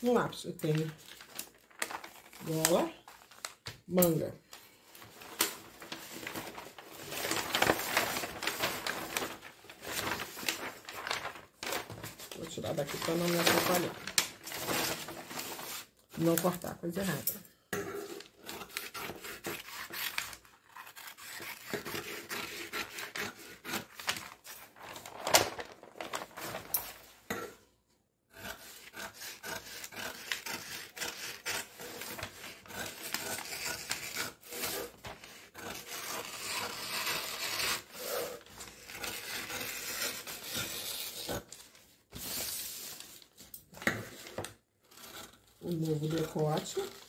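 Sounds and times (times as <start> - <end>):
paper rustling: 0.6 - 17.2, 18.8 - 27.2, 30.3 - 47.0
scissors snipping paper: 18.0 - 24.6.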